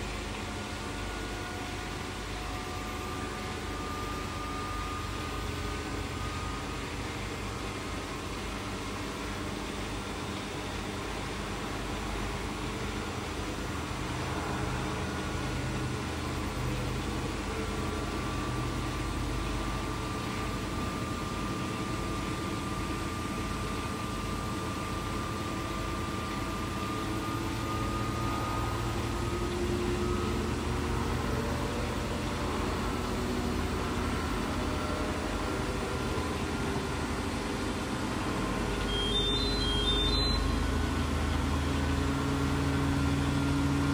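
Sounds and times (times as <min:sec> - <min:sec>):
washing machine running: 0:00.0 - 0:43.9.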